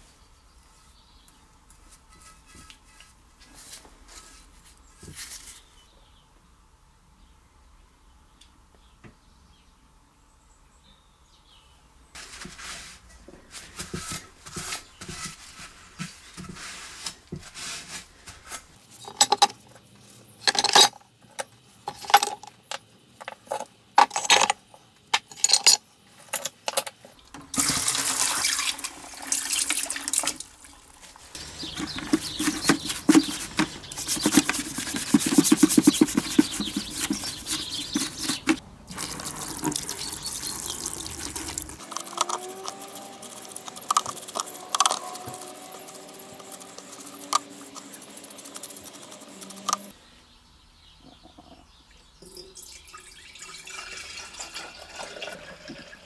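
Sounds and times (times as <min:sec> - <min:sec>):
metal engine parts clinking: 0:18.9 - 0:19.6, 0:20.4 - 0:27.1
water splashing into bucket: 0:27.4 - 0:41.8.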